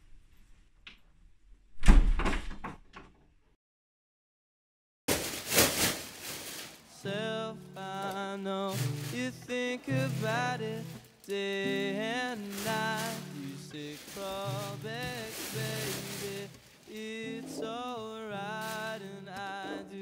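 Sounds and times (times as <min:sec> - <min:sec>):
door slamming shut: 0:01.8 - 0:02.9
music with melody: 0:07.1 - 0:20.0.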